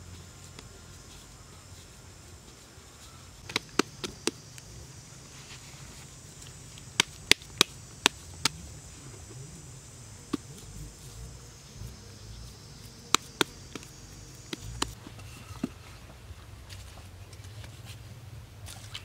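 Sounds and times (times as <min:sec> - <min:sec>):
insects droning: 0:00.0 - 0:19.0
hands slapping wet clay: 0:03.4 - 0:04.6, 0:06.7 - 0:08.6, 0:13.0 - 0:15.0.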